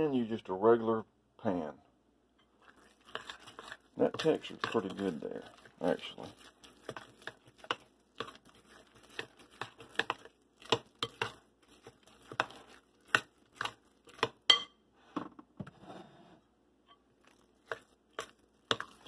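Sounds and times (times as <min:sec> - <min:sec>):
spoon scraping glass bowl: 0:02.6 - 0:14.7.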